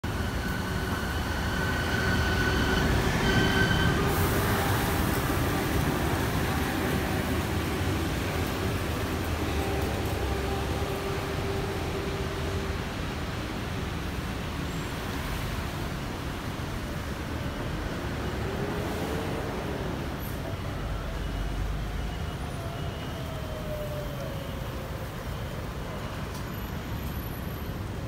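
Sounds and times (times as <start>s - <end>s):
low rumble of traffic or train: 0.0s - 28.0s
high held squeal: 0.1s - 5.5s.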